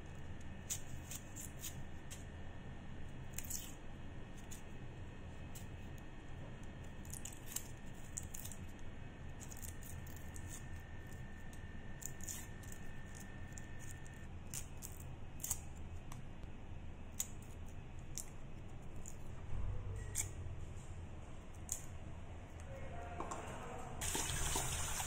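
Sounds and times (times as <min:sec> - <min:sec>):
knife scraping onion skins: 0:00.6 - 0:02.3, 0:12.0 - 0:15.8.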